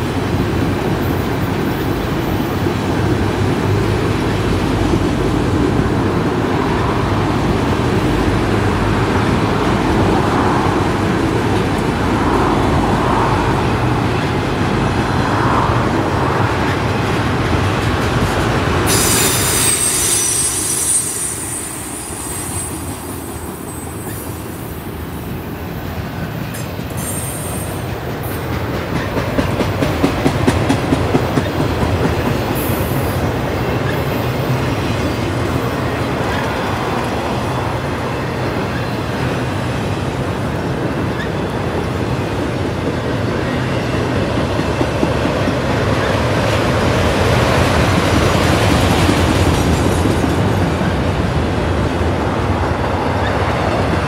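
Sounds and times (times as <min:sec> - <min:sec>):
train wheels rumbling on rail: 0:00.0 - 0:54.0
high wheel squeal: 0:18.9 - 0:24.7.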